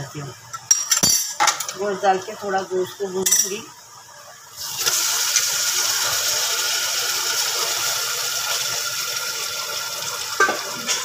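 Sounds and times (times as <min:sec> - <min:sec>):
meat sizzling in hot fat: 0:04.2 - 0:11.0.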